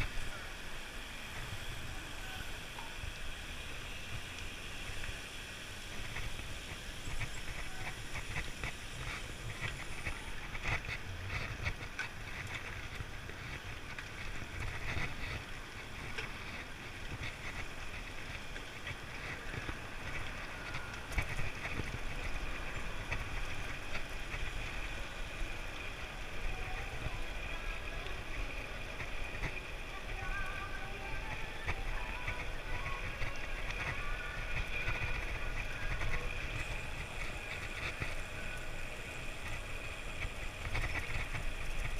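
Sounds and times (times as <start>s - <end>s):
bike tyre and road noise: 0.0s - 41.9s.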